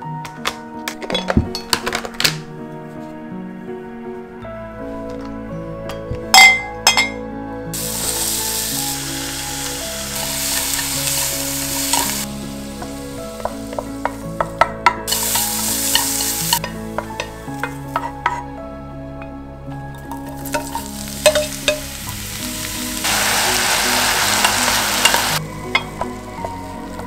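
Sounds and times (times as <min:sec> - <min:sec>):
soft background music: 0:00.0 - 0:27.0
glass clinks: 0:05.9 - 0:07.2
vegetables sizzling in a frying pan: 0:07.8 - 0:14.2, 0:15.1 - 0:16.6, 0:20.4 - 0:26.9.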